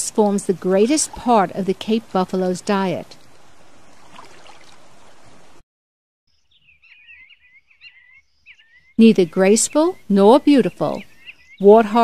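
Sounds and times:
outdoor background hiss: 0.0s - 5.6s, 6.3s - 12.0s
bird chirping: 6.3s - 12.0s.

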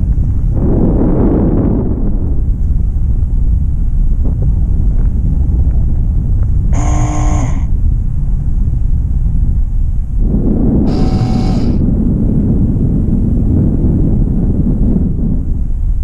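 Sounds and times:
vehicle engine and road rumble: 0.0s - 16.0s
brief buzzy tone: 6.7s - 7.7s, 10.9s - 11.8s.

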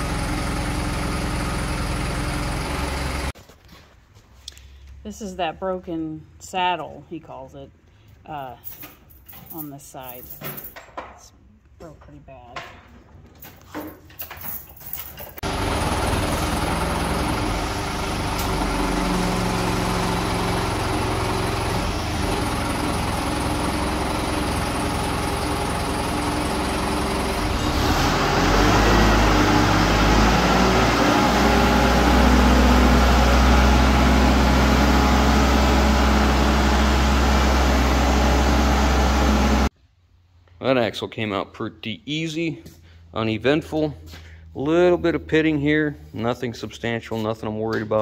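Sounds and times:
heavy machine engine running: 0.0s - 3.4s, 15.4s - 39.7s.

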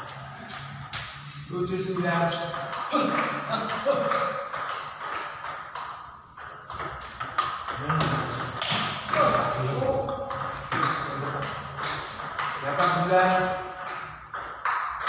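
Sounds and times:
table tennis ball clicking: 2.0s - 9.5s, 10.1s - 15.0s.

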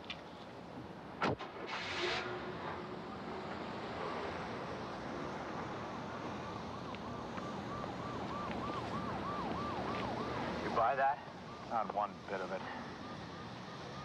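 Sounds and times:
siren yelping: 6.4s - 14.0s.

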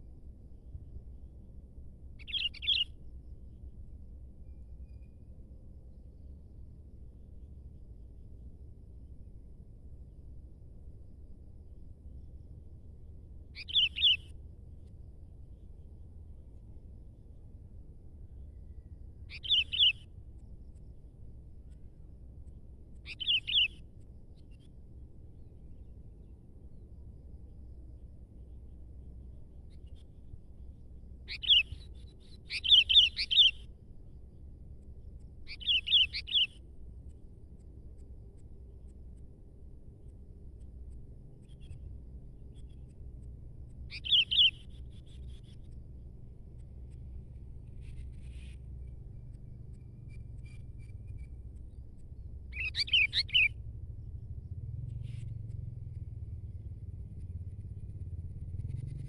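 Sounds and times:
faint bird chirps: 2.1s - 8.5s, 10.8s - 38.7s, 39.9s - 59.0s
bulbul whistled song: 2.2s - 3.0s, 13.6s - 14.4s, 18.7s - 20.1s, 23.0s - 23.8s, 31.3s - 33.7s, 35.5s - 36.6s, 43.9s - 45.5s, 52.5s - 53.6s
bird singing: 2.2s - 3.6s, 4.4s - 6.1s, 13.5s - 14.4s, 18.3s - 20.9s, 23.0s - 24.8s, 29.5s - 33.7s, 35.0s - 36.6s, 43.8s - 45.8s, 46.8s - 53.7s.

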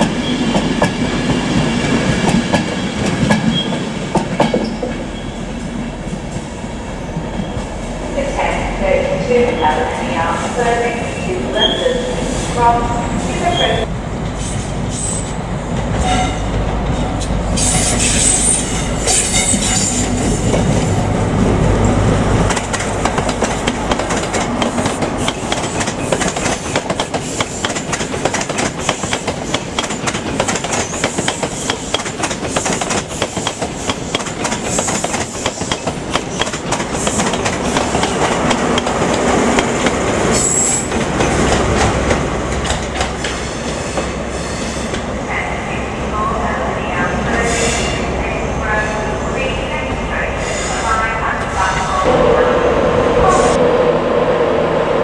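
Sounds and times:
train wheels clattering: 0.0s - 5.1s, 22.4s - 45.0s
high wheel squeal: 17.5s - 20.2s, 40.3s - 40.9s.

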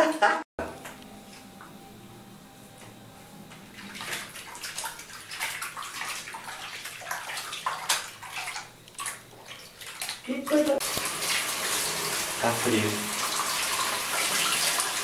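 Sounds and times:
soapy water splashing in basin: 3.7s - 15.0s.

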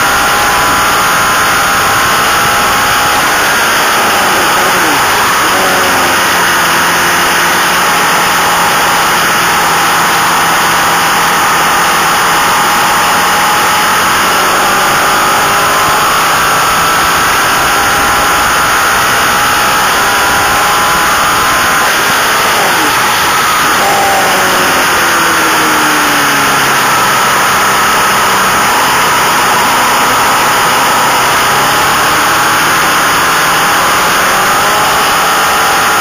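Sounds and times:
motorcycle engine: 0.0s - 36.0s.

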